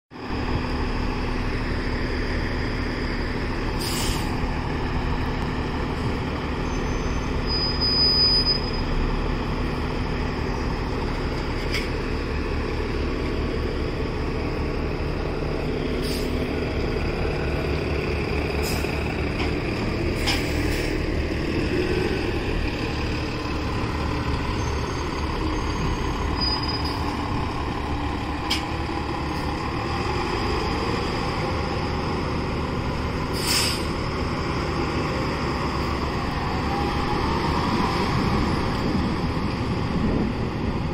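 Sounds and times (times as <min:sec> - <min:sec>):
bus engine rumble: 0:00.2 - 0:40.9
air-brake hisses: 0:03.8 - 0:04.3, 0:16.0 - 0:16.4, 0:33.3 - 0:33.9
high-pitched squeal: 0:06.6 - 0:09.1, 0:24.2 - 0:27.2.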